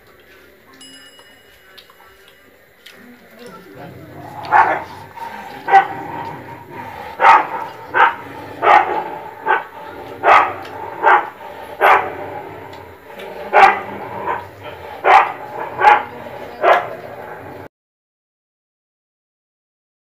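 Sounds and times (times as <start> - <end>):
dog barking: 4.0 - 17.7.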